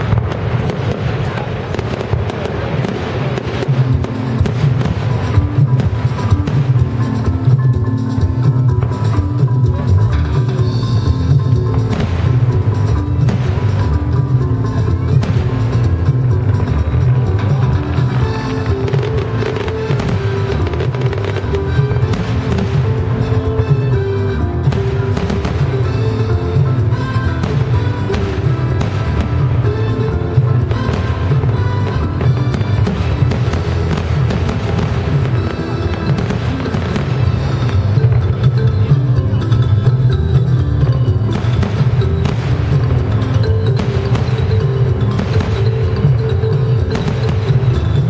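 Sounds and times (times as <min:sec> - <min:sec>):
fireworks crackling: 0:00.0 - 0:48.0
low rumble of explosions: 0:00.0 - 0:48.0
music with strong bass: 0:00.0 - 0:48.0
firework shells bursting: 0:41.3 - 0:48.0.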